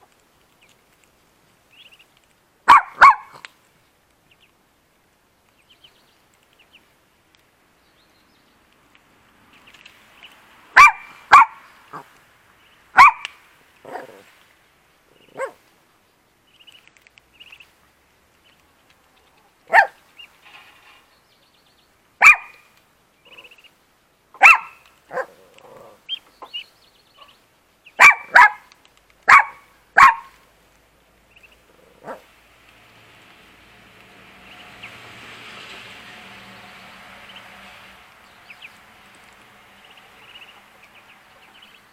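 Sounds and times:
dog barking: 0:02.7 - 0:03.4, 0:10.8 - 0:12.1, 0:13.0 - 0:13.3, 0:15.3 - 0:15.6, 0:19.7 - 0:20.0, 0:22.2 - 0:22.6, 0:24.4 - 0:25.4, 0:28.0 - 0:28.7, 0:29.3 - 0:30.4, 0:32.0 - 0:32.2.

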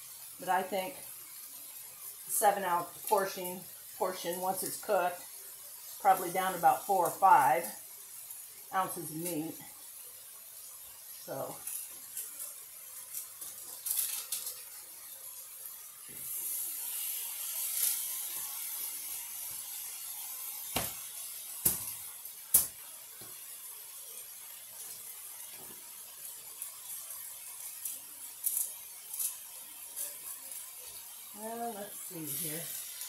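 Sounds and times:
meat sizzling in a skillet: 0:00.0 - 0:33.0.

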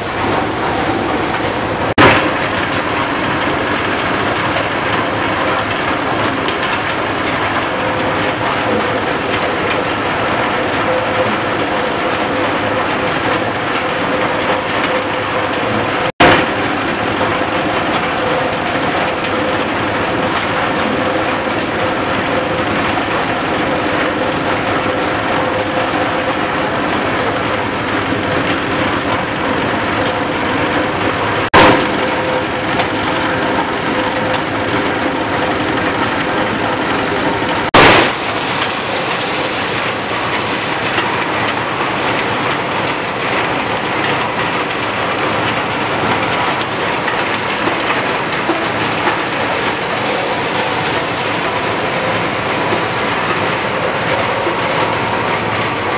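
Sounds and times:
corn sheller running: 0:00.0 - 0:55.9
loud crack: 0:01.4 - 0:09.8, 0:31.4 - 0:52.1.

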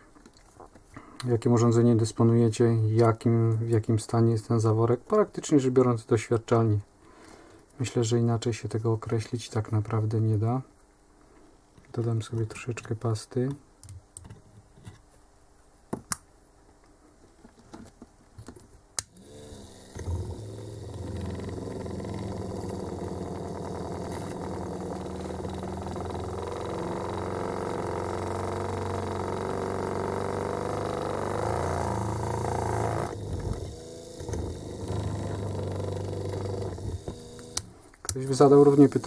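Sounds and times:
small drill motor running: 0:19.1 - 0:37.7, 0:38.4 - 0:39.0.

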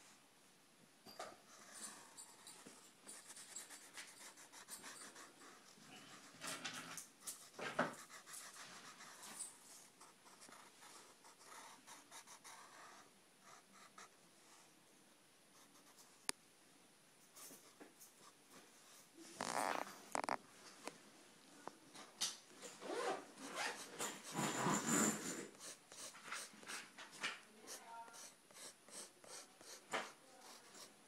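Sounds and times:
pencil scratching on paper: 0:01.5 - 0:14.2, 0:15.6 - 0:16.2, 0:23.4 - 0:31.0.

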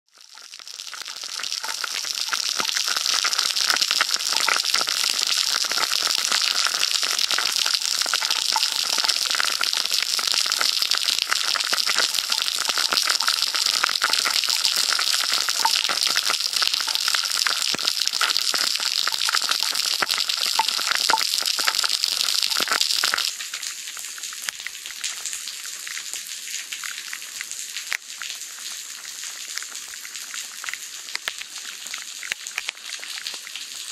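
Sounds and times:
rain falling on puddle: 0:00.1 - 0:33.9
water gushing from manhole: 0:00.1 - 0:33.9
water drops ticking: 0:00.2 - 0:23.4.

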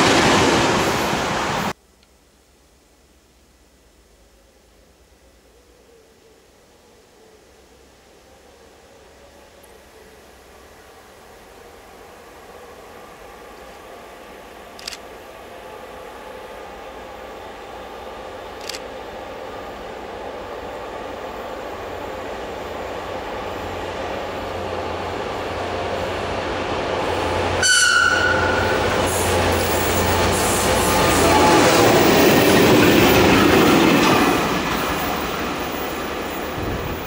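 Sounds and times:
train engine and wheel noise: 0:00.0 - 0:37.0
locomotive horn blast: 0:27.5 - 0:32.0.

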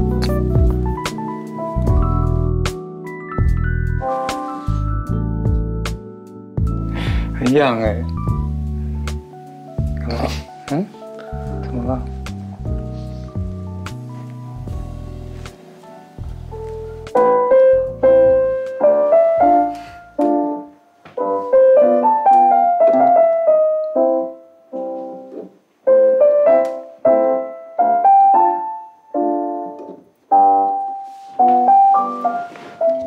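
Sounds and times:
piano tune: 0:00.0 - 0:33.0.

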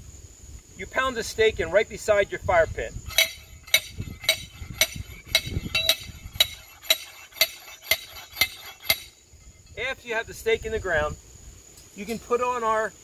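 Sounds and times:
ringing metallic clanks: 0:03.1 - 0:09.8.

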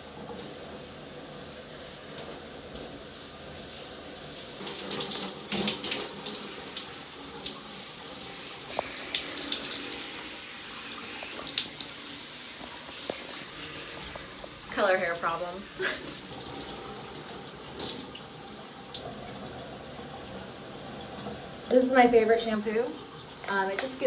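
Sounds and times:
shower water running: 0:00.0 - 0:24.0
water splashing: 0:04.6 - 0:21.3.

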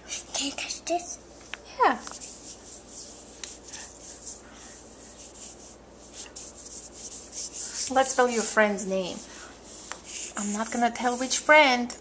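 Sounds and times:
hand rubbing chalkboard: 0:02.1 - 0:11.6.

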